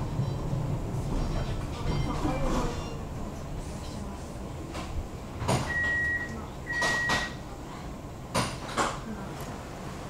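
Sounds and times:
door warning beeps: 0:05.6 - 0:07.4.

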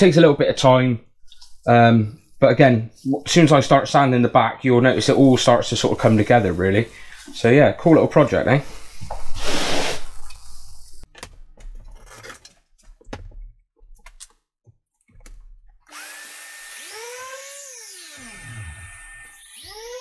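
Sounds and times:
knocks and clatter of handling: 0:11.1 - 0:15.8
orbital sander whining: 0:15.9 - 0:20.0.

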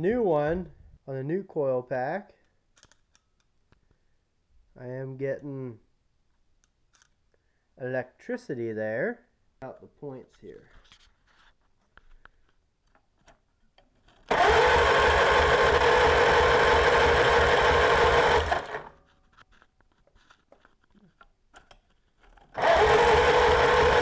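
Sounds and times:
engine cranking by starter: 0:14.3 - 0:19.0, 0:22.5 - 0:24.0.

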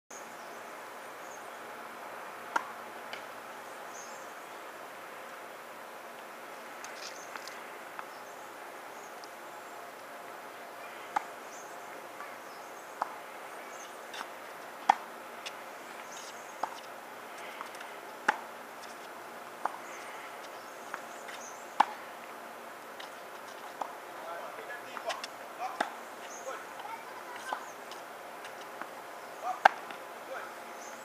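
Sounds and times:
tennis ball bouncing on court: 0:02.5 - 0:03.2, 0:14.1 - 0:15.6, 0:16.2 - 0:16.9, 0:17.6 - 0:18.5, 0:21.8 - 0:22.0, 0:24.9 - 0:26.0, 0:26.8 - 0:30.0
tennis ball off racket strings: 0:14.1 - 0:16.9.

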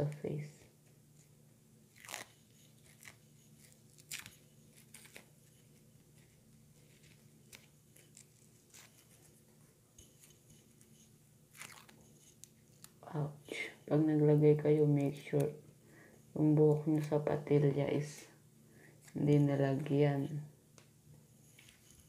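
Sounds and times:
faint low hum: 0:00.0 - 0:22.0
face mask peeling crackles: 0:01.9 - 0:09.4, 0:10.0 - 0:13.0.

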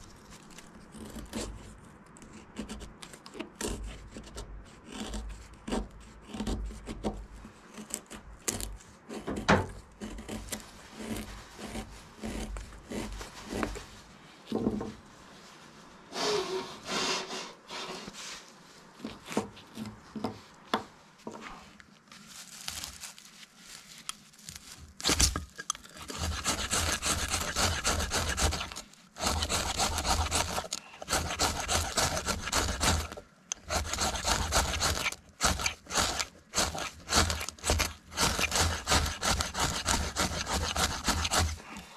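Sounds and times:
knife blade scraping wood: 0:00.0 - 0:13.8, 0:16.1 - 0:18.2, 0:25.0 - 0:41.8.

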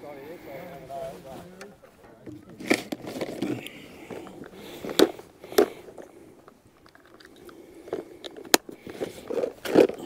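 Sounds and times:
plastic tackle box clicking: 0:02.2 - 0:10.0.

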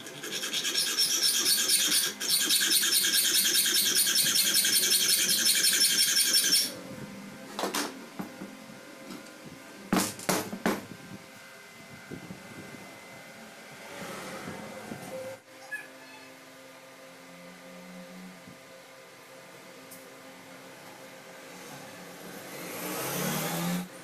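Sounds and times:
hacksaw cutting metal rod: 0:00.0 - 0:06.8.

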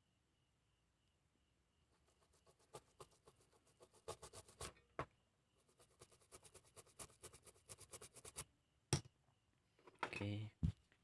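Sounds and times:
brush scrubbing circuit board: 0:02.0 - 0:04.7, 0:05.6 - 0:08.4.

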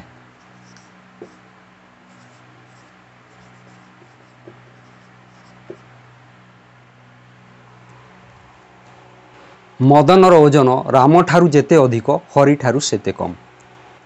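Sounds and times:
steady low hum: 0:00.0 - 0:14.0
marker writing on whiteboard: 0:00.3 - 0:01.5, 0:02.1 - 0:06.0
pen tapping on board: 0:05.6 - 0:05.9.

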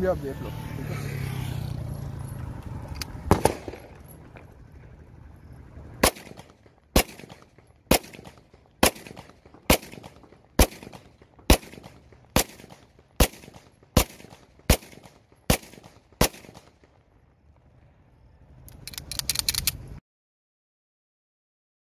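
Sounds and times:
gun clicks: 0:02.9 - 0:04.1, 0:18.6 - 0:19.9
pistol shots: 0:03.2 - 0:04.4, 0:06.0 - 0:16.9.

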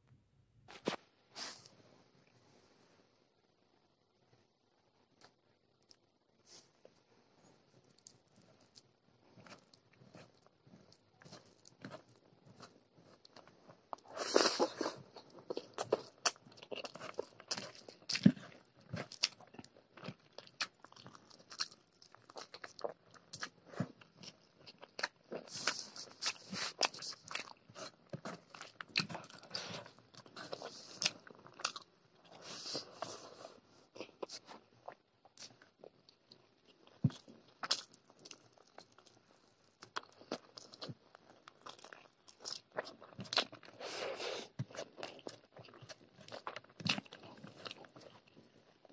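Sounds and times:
close chewing with wet smacking: 0:07.9 - 0:32.4, 0:34.0 - 0:43.8, 0:44.5 - 0:48.9.

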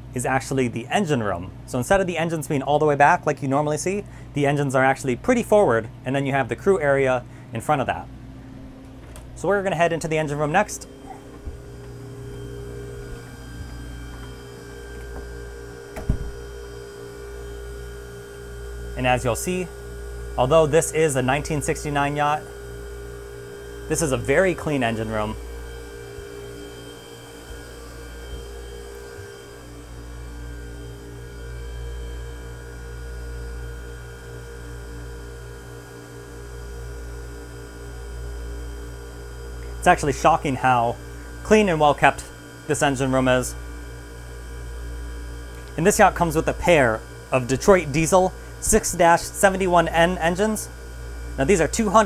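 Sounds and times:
steady electrical hum: 0:00.0 - 0:52.0
steady tones: 0:09.4 - 0:31.4.

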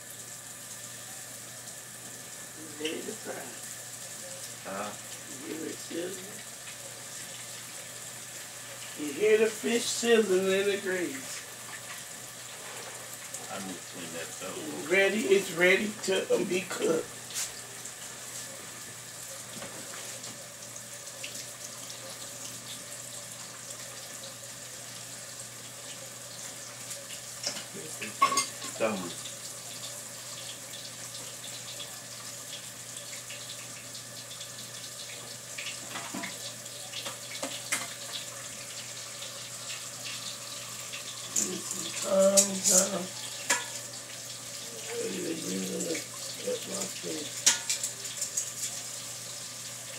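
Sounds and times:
fish frying in grease: 0:00.0 - 0:49.9
kitchen utensils clattering: 0:27.4 - 0:28.8.

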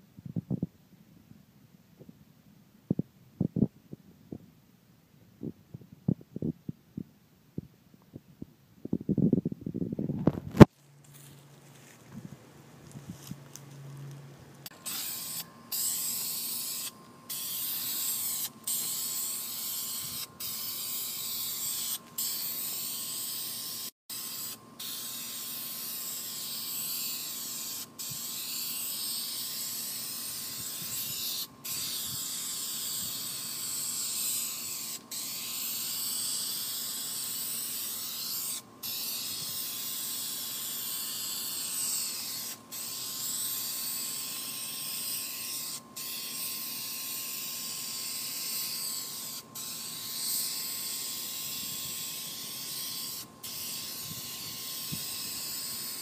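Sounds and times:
aerosol spray can hissing: 0:14.6 - 0:56.0.

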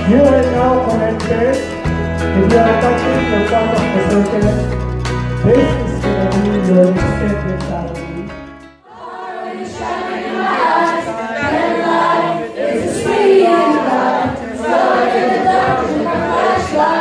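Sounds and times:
background music: 0:00.0 - 0:17.0
group singing unaccompanied: 0:08.8 - 0:17.0.

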